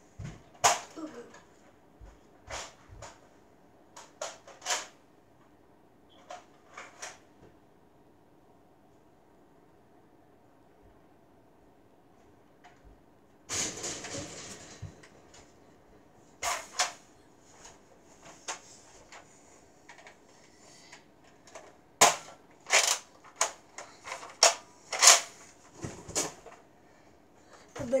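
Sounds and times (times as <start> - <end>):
loud sharp plastic clacks: 4.0 - 5.0, 16.4 - 19.3, 19.9 - 26.6.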